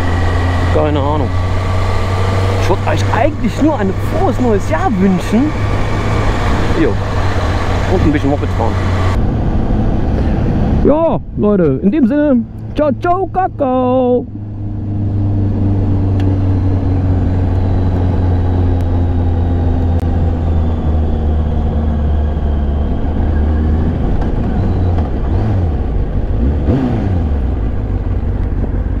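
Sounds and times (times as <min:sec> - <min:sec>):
wind and road noise: 0:00.0 - 0:29.0.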